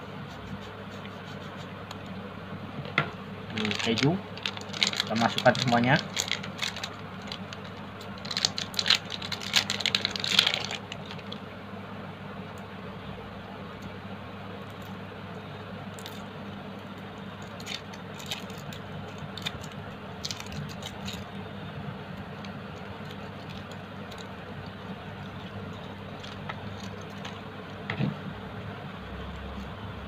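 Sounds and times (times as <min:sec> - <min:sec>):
steady low hum: 0:00.0 - 0:30.0
foil wrapper crinkling: 0:03.5 - 0:11.4, 0:17.4 - 0:21.3, 0:22.2 - 0:27.5.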